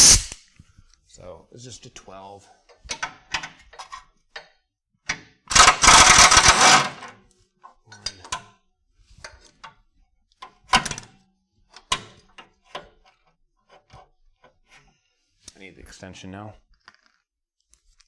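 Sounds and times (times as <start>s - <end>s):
air impact wrench hammering: 0.0s - 0.4s, 5.5s - 7.1s.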